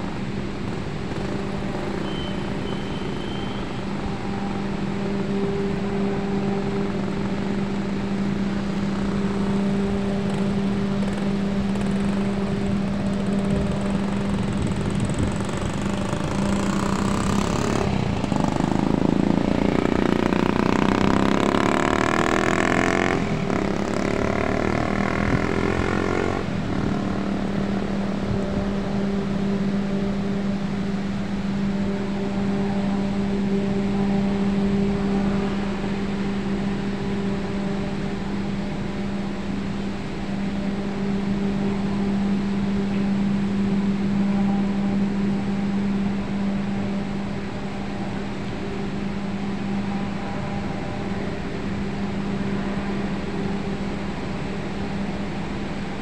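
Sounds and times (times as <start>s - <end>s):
vehicle engine passing: 0.0s - 31.1s
low mechanical hum: 0.0s - 56.0s.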